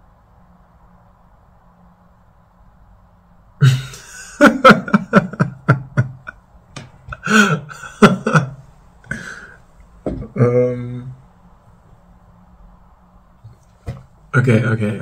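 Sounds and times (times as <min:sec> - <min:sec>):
man laughing: 0:03.6 - 0:11.1.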